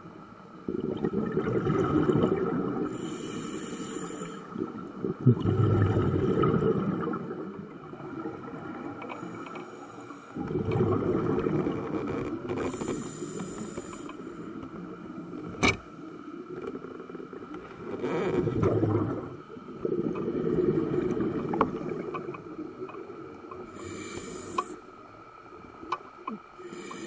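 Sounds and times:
exhaled bubbles underwater: 0:00.6 - 0:27.0
regulator inhalation hiss: 0:02.8 - 0:04.6, 0:09.2 - 0:10.4, 0:12.7 - 0:14.6, 0:23.6 - 0:25.0, 0:26.6 - 0:27.0.

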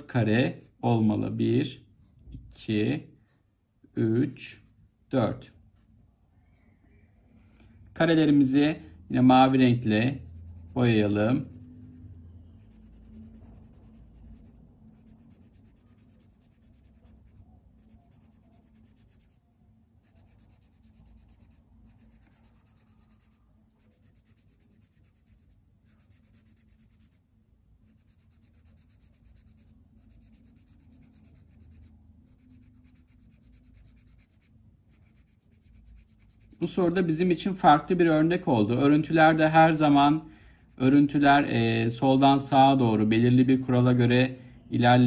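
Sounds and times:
marker scribbling on paper: 0:09.8 - 0:19.4, 0:20.0 - 0:27.2, 0:27.8 - 0:37.4.

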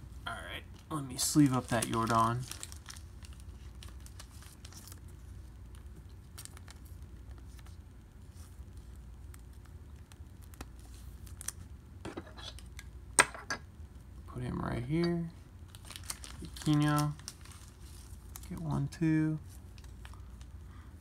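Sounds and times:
low steady hum: 0:00.0 - 0:21.0
card rustling in plastic sleeve: 0:00.7 - 0:11.7, 0:15.6 - 0:20.6.

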